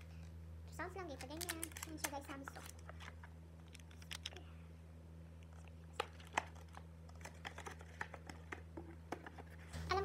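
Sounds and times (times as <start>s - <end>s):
steady low hum: 0.0s - 10.0s
packaging crinkling: 1.2s - 4.4s.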